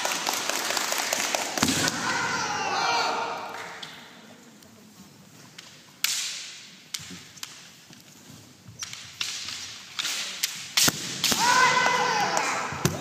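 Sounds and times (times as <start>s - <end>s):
bamboo swords cracking: 5.6s - 7.7s, 8.8s - 13.0s.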